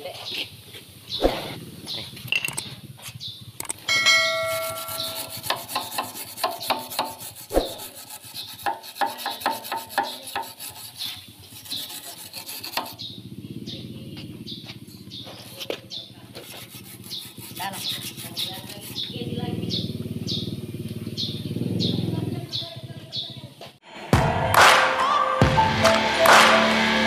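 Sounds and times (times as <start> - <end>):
short metallic ring: 3.8 - 5.8
wire brush scrubbing metal: 3.9 - 13.1, 15.3 - 19.2.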